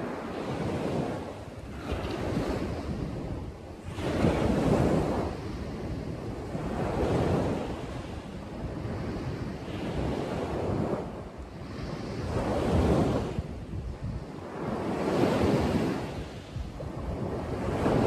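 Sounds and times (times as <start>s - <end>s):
waves washing onto sand: 0.0s - 18.0s
wind rumble on microphone: 0.0s - 18.0s.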